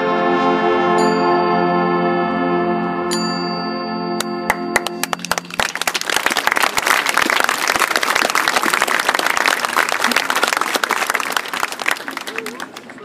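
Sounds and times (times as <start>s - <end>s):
held brass chord: 0.0s - 5.6s
audience applauding: 4.5s - 13.0s.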